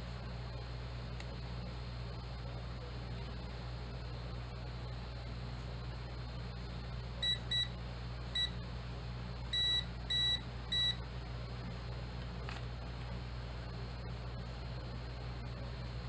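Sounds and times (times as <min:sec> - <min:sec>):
multimeter continuity buzzer beeping: 0:07.2 - 0:08.6, 0:09.5 - 0:11.1.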